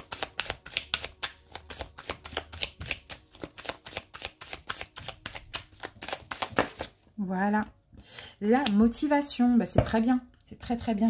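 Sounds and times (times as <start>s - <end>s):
cards being shuffled: 0.0s - 7.0s.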